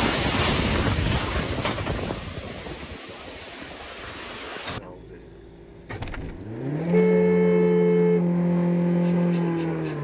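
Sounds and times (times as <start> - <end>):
wind buffeting microphone: 0.0 - 3.6.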